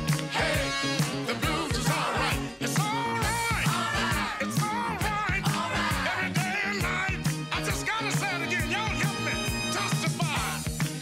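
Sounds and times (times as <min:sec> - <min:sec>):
song with vocals and drum beat: 0:00.0 - 0:11.0.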